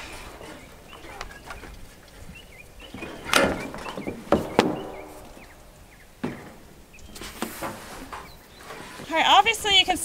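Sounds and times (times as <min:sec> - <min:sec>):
faint bird chirps: 0:00.0 - 0:07.4
sharp knocks on plastic tank: 0:03.4 - 0:05.3.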